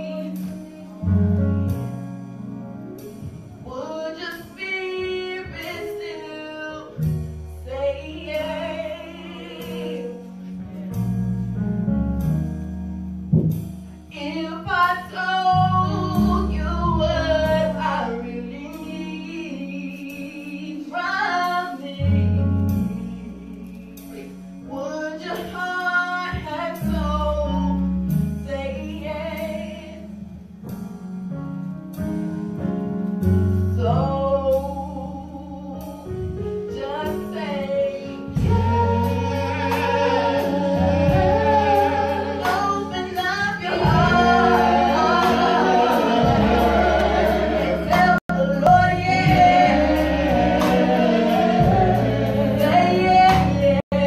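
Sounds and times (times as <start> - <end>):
woman singing gospel: 0.0 - 1.5, 3.6 - 11.0, 14.1 - 27.9, 28.5 - 30.1, 33.7 - 54.0
low bass chords: 6.9 - 19.7, 21.8 - 24.9, 26.4 - 54.0
light steady beat: 9.6 - 14.0, 38.2 - 53.8.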